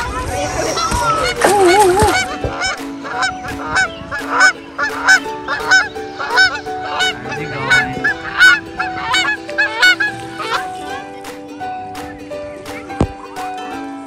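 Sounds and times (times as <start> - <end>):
geese honking: 0.8 - 11.0.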